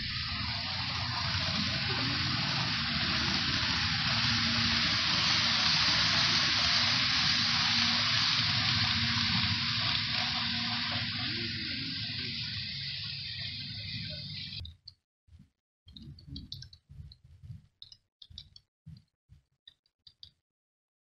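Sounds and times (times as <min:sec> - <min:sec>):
steady rushing hiss: 0:00.0 - 0:14.6.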